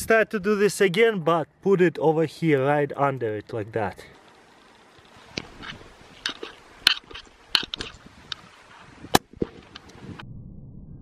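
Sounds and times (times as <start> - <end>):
sharp irregular clicks and cracks: 4.1 - 8.5, 9.1 - 10.0.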